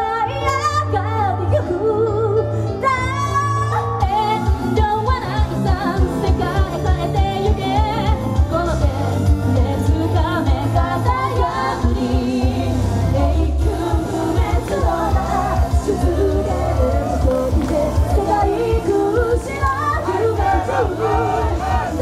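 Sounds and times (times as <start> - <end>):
person singing pop song: 0.0 - 22.0
heavy pulsing bass beat: 19.4 - 22.0.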